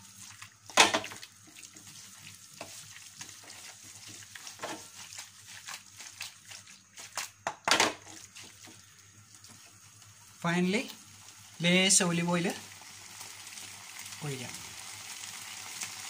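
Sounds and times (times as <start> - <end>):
faint sizzle from pan: 0.0 - 16.0
wooden spatula scraping a pan: 0.7 - 7.2.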